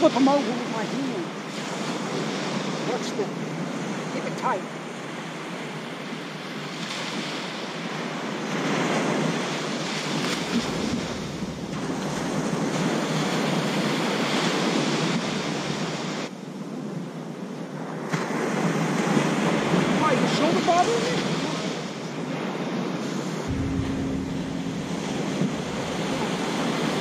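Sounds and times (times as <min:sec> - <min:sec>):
ocean surf washing on beach: 0:17.1 - 0:27.0
wind buffeting microphone: 0:23.5 - 0:27.0.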